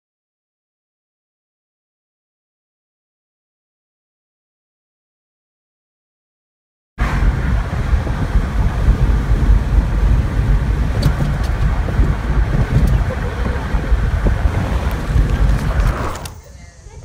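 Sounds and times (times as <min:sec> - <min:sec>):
car road and wind noise: 0:07.0 - 0:17.0.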